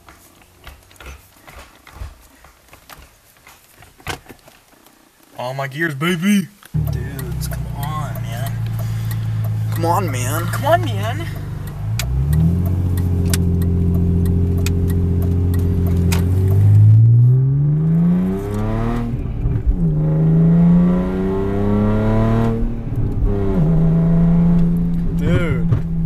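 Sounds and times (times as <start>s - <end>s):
sharp clicks: 6.6s - 16.9s
car engine accelerating: 6.7s - 26.0s.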